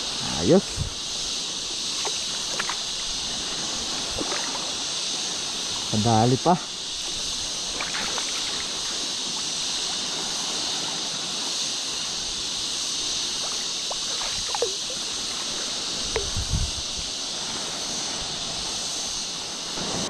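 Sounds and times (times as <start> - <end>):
rushing water: 0.0 - 20.0
fish splashing at surface: 1.9 - 4.8, 7.0 - 10.0, 13.2 - 16.5.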